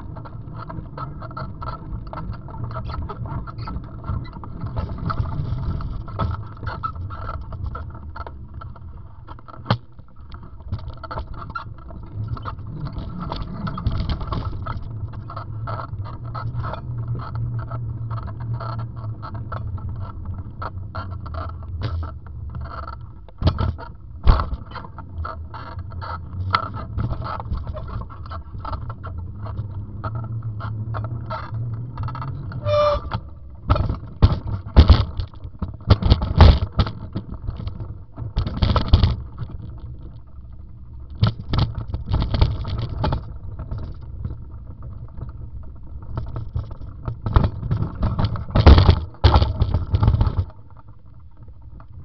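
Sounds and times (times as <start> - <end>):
bicycle tyres rumbling: 0.0 - 52.0
bike rattling: 0.0 - 52.0
bike knocking over bumps: 33.7 - 37.6.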